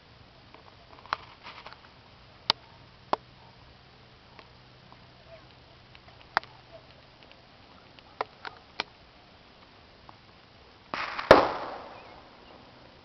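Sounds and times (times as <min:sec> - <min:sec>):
distant gunshots: 0:11.0 - 0:12.5
gunshot echo: 0:11.0 - 0:12.5.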